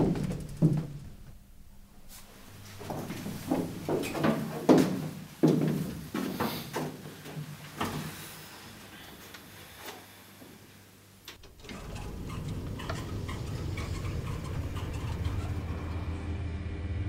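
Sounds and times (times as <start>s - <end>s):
elevator low steady hum: 10.9s - 17.0s.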